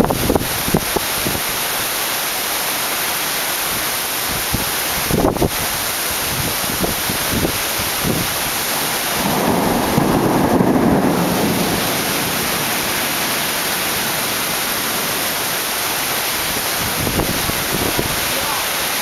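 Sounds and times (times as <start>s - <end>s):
heavy rain pouring: 0.0s - 19.0s
thunder rumble: 6.4s - 18.3s.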